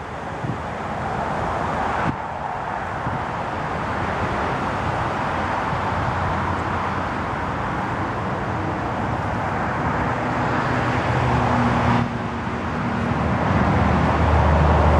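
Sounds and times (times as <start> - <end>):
constant rushing haze: 0.0 - 14.9
vehicle engine hum: 0.0 - 14.9.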